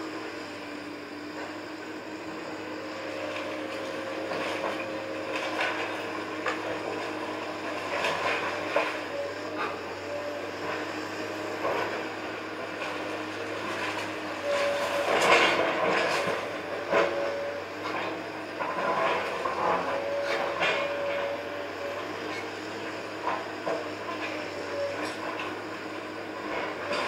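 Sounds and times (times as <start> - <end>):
excavator engine under load: 0.0 - 27.0.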